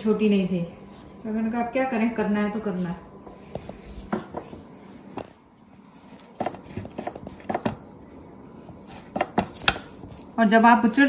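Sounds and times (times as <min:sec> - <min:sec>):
knife cutting meat: 0:05.8 - 0:07.8, 0:08.6 - 0:10.4.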